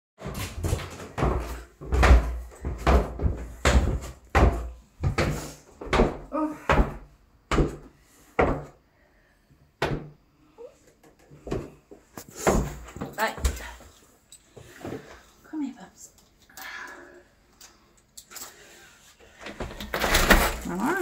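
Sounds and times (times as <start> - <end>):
footsteps on carpeted stairs: 0.2 - 8.8, 11.2 - 15.2.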